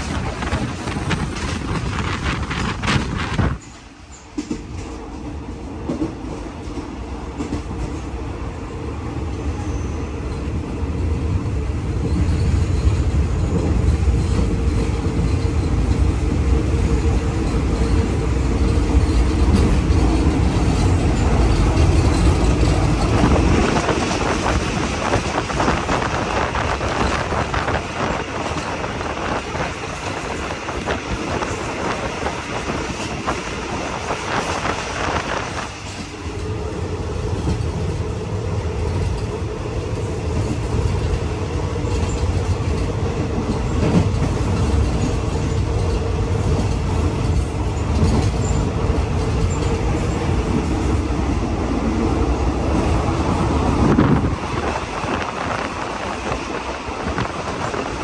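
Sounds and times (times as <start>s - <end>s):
train rumbling on track: 0.0s - 58.0s.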